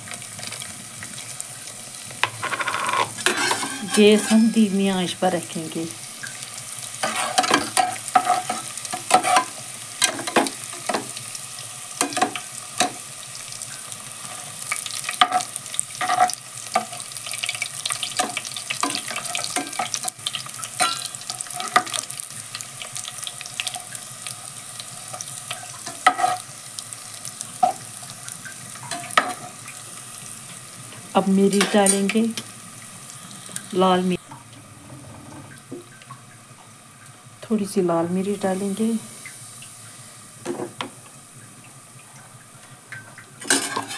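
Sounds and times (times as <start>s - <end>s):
paste sizzling in hot oil: 0.0s - 34.2s, 37.1s - 41.3s, 42.4s - 43.9s
metal spoon clinking and scraping pot: 2.2s - 4.8s, 7.0s - 10.4s, 43.4s - 43.9s.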